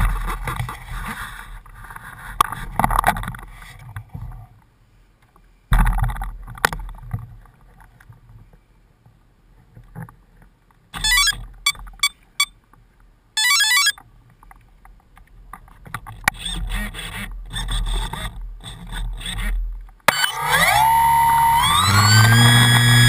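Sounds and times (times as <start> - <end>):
rapid electronic beeping: 11.0 - 11.4, 13.4 - 14.0.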